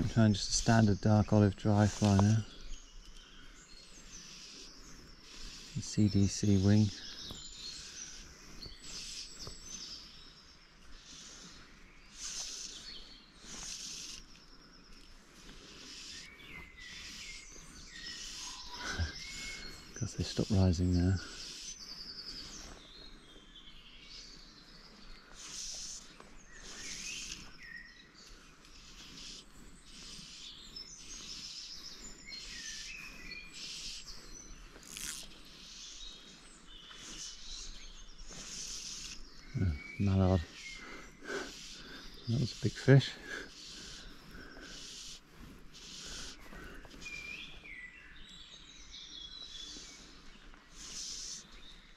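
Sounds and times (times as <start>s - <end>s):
outdoor background hiss: 0.0s - 51.9s
songbirds singing: 0.0s - 51.9s
faint bird calling: 2.0s - 22.8s, 24.4s - 48.2s, 49.4s - 51.9s
fly line swishing through air: 32.4s - 36.0s.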